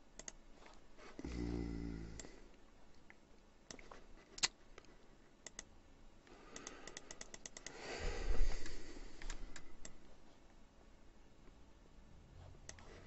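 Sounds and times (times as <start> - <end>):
mouse and keyboard clicks: 0.2 - 0.4, 3.7 - 5.7, 6.5 - 7.8
person sighing: 1.2 - 2.5, 7.7 - 9.8.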